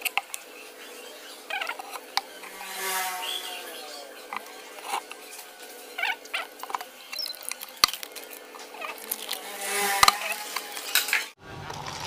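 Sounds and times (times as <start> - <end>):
plastic cups clicking and squeaking: 0.0 - 2.7, 3.4 - 12.0.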